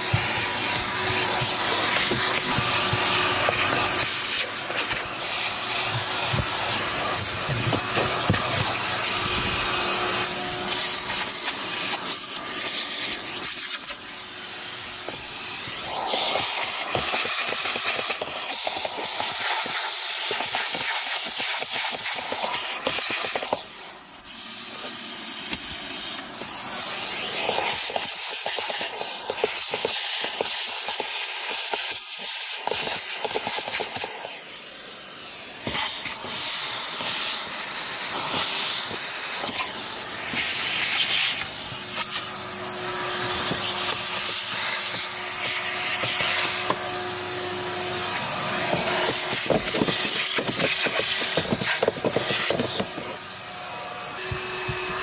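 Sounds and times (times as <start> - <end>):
vacuum cleaner nozzle hissing: 0.0 - 55.0.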